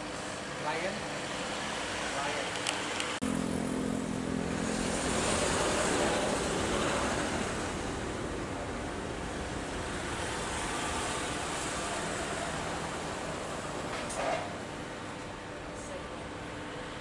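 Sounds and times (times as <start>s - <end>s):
jet engines running: 1.7s - 15.1s.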